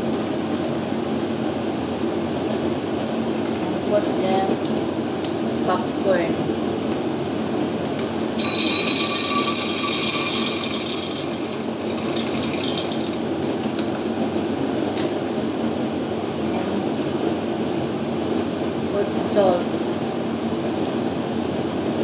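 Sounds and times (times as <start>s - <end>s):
popcorn kernels rattling into metal pot: 8.4s - 13.9s.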